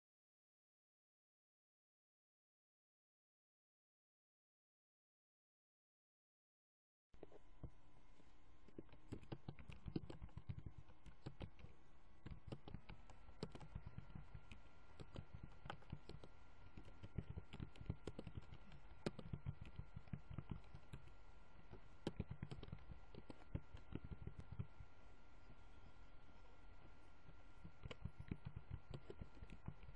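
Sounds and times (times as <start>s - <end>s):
faint high whine: 7.2s - 29.9s
keyboard typing: 7.2s - 29.9s.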